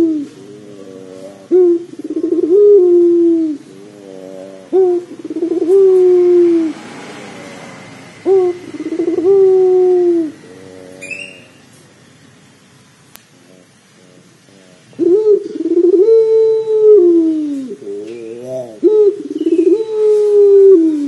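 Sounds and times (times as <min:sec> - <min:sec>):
dove cooing: 0:00.0 - 0:11.8, 0:13.4 - 0:21.0
high bird chirp: 0:11.0 - 0:11.7, 0:19.2 - 0:20.2.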